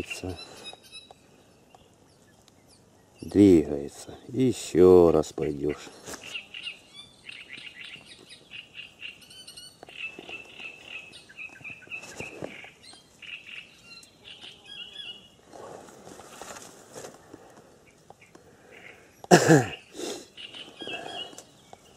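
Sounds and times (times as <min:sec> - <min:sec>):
songbirds chirping: 0:00.0 - 0:21.9
soft rustles: 0:09.9 - 0:13.0, 0:15.4 - 0:17.7.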